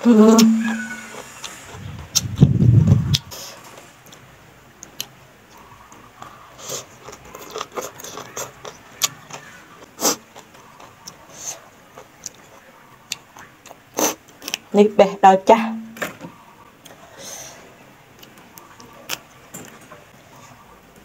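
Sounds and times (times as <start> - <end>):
person slurping and chewing noodles: 6.2 - 14.6.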